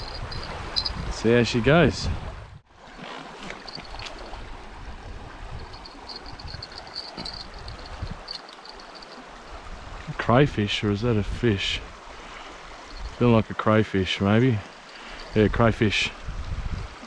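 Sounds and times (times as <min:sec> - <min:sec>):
stream rushing over shallow bed: 0:00.0 - 0:01.5, 0:02.7 - 0:17.0
faint high chirping: 0:05.8 - 0:09.2.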